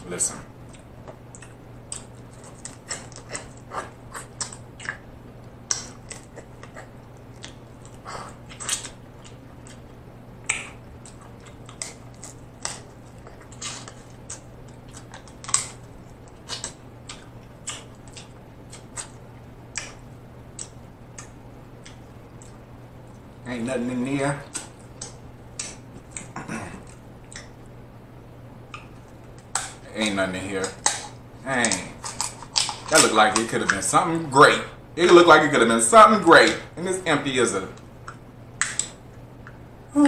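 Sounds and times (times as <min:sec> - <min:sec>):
person sucking and chewing crab: 0:05.7 - 0:22.6.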